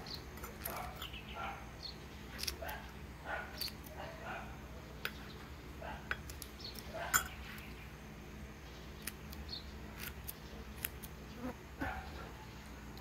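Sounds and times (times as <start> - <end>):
scissors snipping greens: 0.4 - 1.1, 2.3 - 4.4, 9.0 - 11.2.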